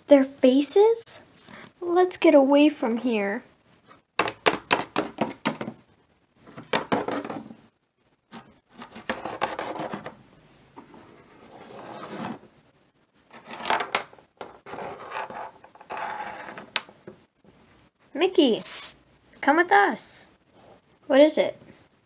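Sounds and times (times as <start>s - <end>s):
plastic figures scraping on tabletop: 6.5s - 7.6s, 8.3s - 10.2s, 10.8s - 12.5s, 13.3s - 16.9s.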